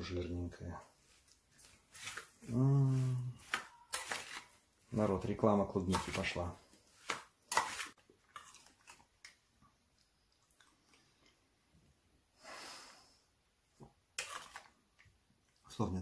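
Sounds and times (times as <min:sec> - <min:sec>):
person chewing: 0:07.7 - 0:11.5.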